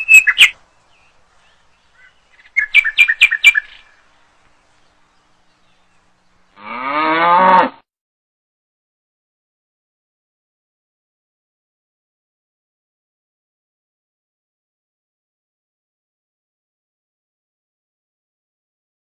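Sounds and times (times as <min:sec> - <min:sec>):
bird-like chirps: 0:00.0 - 0:06.4.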